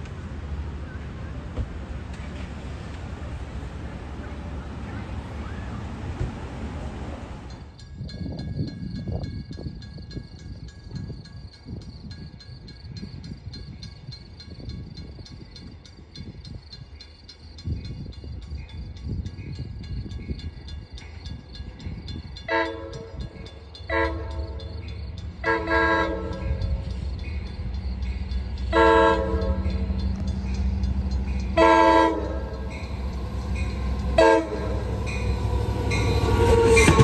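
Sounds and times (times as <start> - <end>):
train engine rumble: 0.0 - 37.0
train wheels on rails: 0.0 - 37.0
locomotive air horn blasts: 22.5 - 23.1, 23.9 - 24.6, 25.4 - 26.6, 28.7 - 29.9, 31.6 - 32.8, 33.6 - 37.0.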